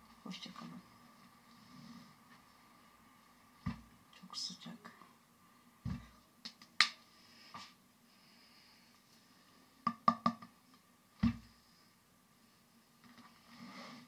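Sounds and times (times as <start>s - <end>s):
heavy dull thump: 3.6s - 4.0s, 5.8s - 6.2s.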